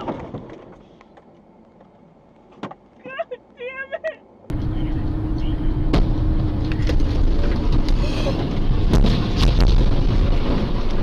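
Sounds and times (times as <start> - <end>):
car road and engine noise: 0.0 - 11.0
sharp knocks and thuds: 5.8 - 11.0.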